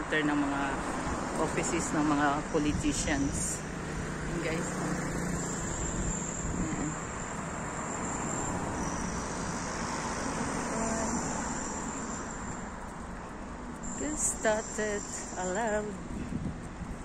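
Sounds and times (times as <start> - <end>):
road traffic rushing: 0.0 - 17.0
faint high whine: 4.6 - 16.2.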